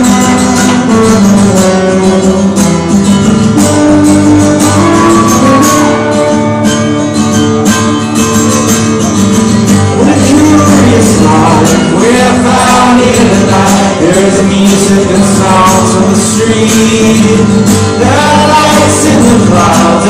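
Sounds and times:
acoustic guitar strumming: 0.0 - 20.0.

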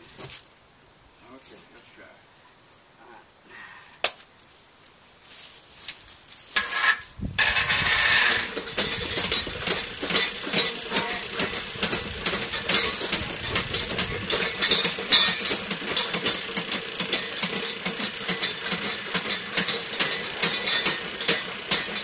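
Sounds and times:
cable clicking and rattling: 7.4 - 22.0
drain snake motor whine: 7.4 - 22.0.

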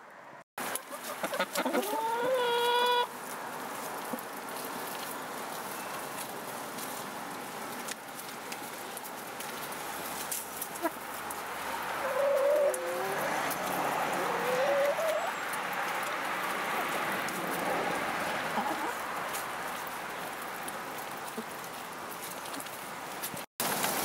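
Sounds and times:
hens scratching dry leaves: 0.6 - 24.0
hen calling: 0.7 - 3.1, 12.0 - 15.4.

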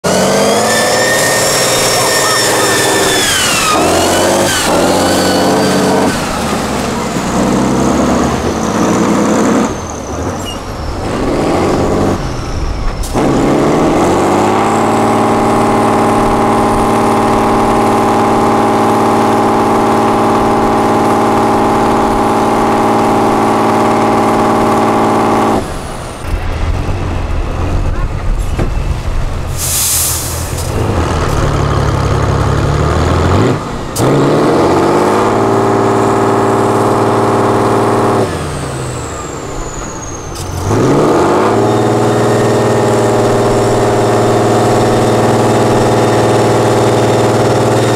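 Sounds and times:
truck diesel engine revving: 0.0 - 47.9
high whine: 0.1 - 6.5.

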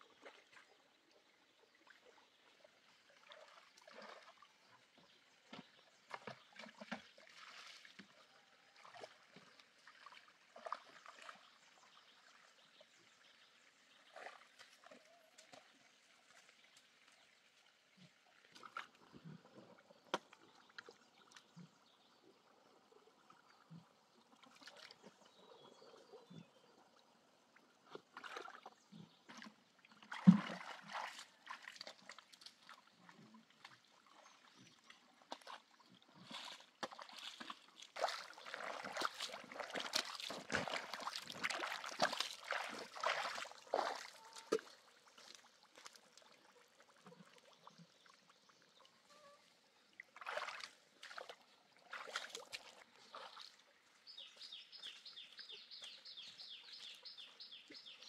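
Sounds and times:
water splashes: 1.5 - 21.8, 27.8 - 58.0
hands sloshing in mud and water: 3.3 - 12.2, 27.9 - 48.4, 50.0 - 57.0.

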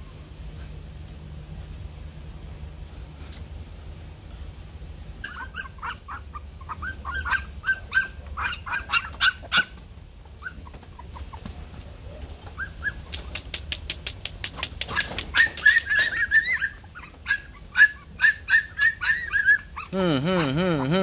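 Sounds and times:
low steady hum: 0.0 - 21.0
puppies yipping: 5.1 - 11.6, 12.2 - 21.0.

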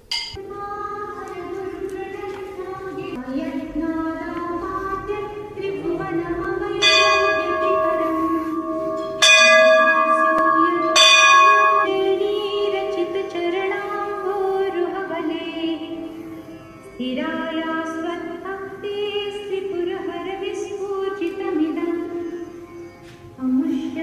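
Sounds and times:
music with singing: 0.2 - 24.0
temple bell ringing: 5.8 - 17.4.

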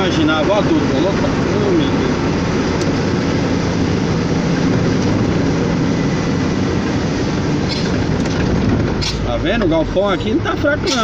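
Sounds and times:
truck engine running: 0.0 - 11.0.

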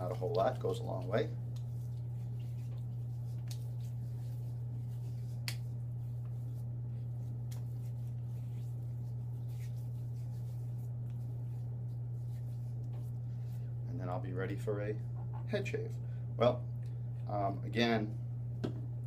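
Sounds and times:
hands patting skin: 0.0 - 13.6
steady low hum: 0.0 - 19.0.

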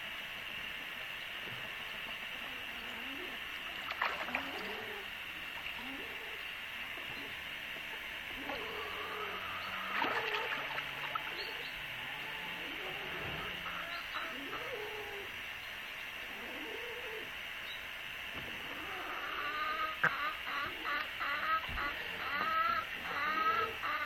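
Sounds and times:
water splashing in pool: 3.7 - 5.8, 9.9 - 11.4.

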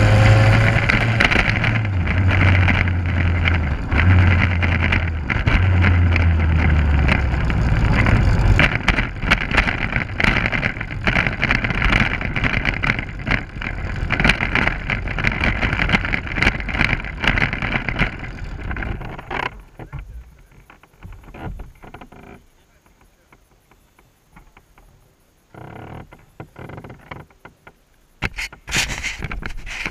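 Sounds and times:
wind rushing over camera: 0.0 - 21.9, 28.2 - 29.9
low hum: 0.0 - 25.2
knocks and rattles: 0.0 - 29.9
road noise: 0.0 - 29.9.

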